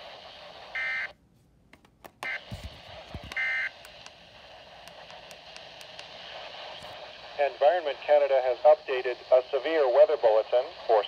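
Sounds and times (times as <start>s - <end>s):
static hiss: 0.0s - 1.1s, 2.3s - 11.0s.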